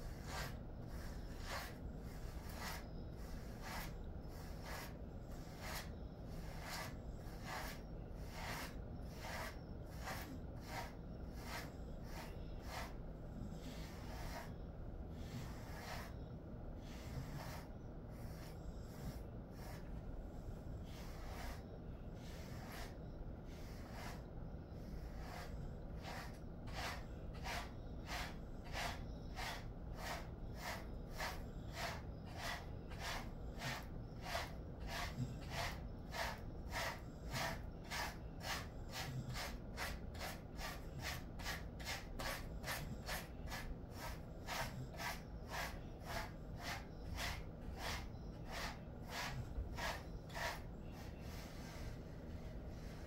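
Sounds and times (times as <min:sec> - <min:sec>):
brush stroking dog fur: 0:00.0 - 0:14.6, 0:15.2 - 0:53.0.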